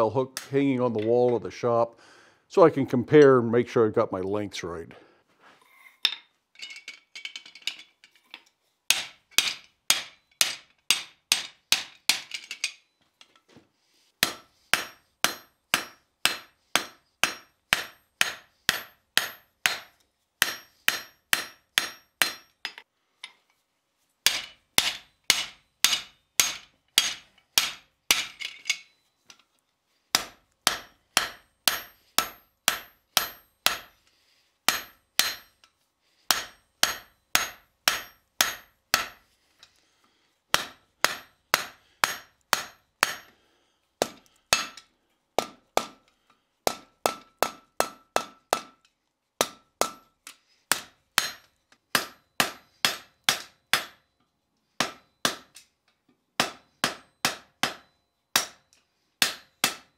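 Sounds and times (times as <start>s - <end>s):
hammer striking steel on anvil: 8.9s - 12.8s, 14.2s - 22.9s, 24.2s - 29.0s, 30.1s - 34.0s, 34.7s - 35.7s, 36.3s - 39.3s, 40.5s - 43.4s, 44.0s - 46.1s, 46.7s - 48.8s, 49.4s - 54.2s, 54.8s - 55.6s, 56.4s - 59.9s.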